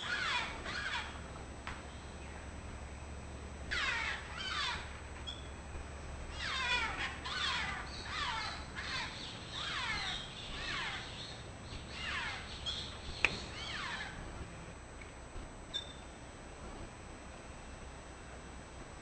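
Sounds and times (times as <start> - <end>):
parrots giving harsh calls: 0.0 - 1.2, 3.7 - 4.9, 6.3 - 11.2, 11.9 - 12.6, 13.5 - 14.2.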